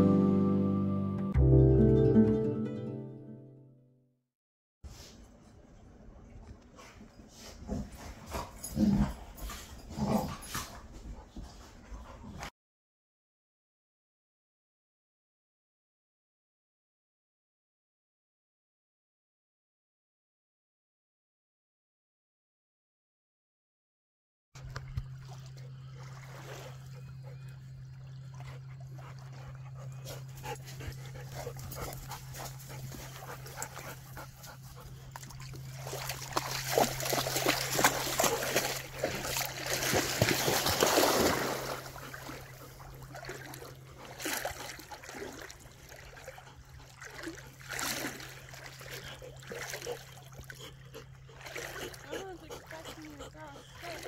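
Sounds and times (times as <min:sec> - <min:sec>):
water splashing: 0:24.6 - 0:27.1, 0:35.0 - 0:50.7, 0:51.3 - 0:54.0.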